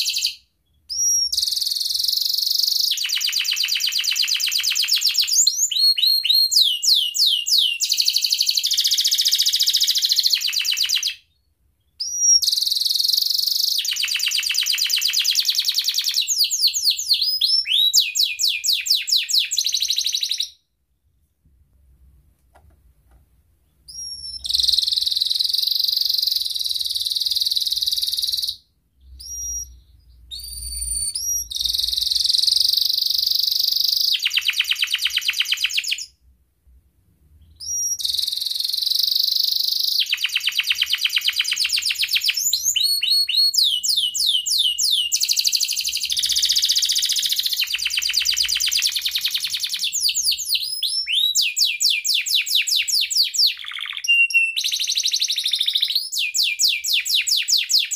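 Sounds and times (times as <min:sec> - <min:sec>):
canary singing trills: 0:00.0 - 0:20.6, 0:23.7 - 0:36.2, 0:37.4 - 0:57.9.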